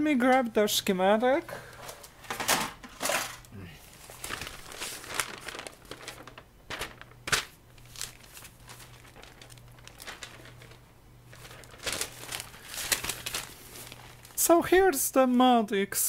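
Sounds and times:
faint low hum: 0.0s - 16.0s
paper rustling and crinkling: 1.6s - 15.0s.

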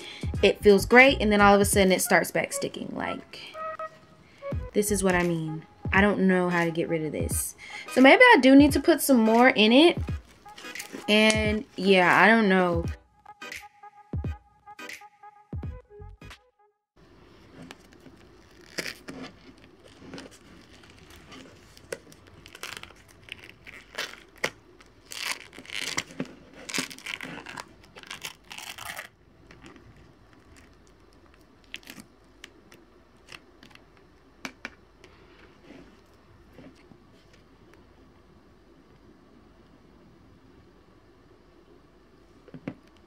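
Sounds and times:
plastic tub crinkling: 10.2s - 11.9s, 17.4s - 34.0s.

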